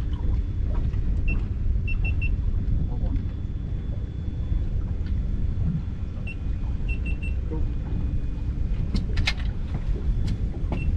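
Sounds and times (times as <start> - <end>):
steady low rumble: 0.0 - 10.9.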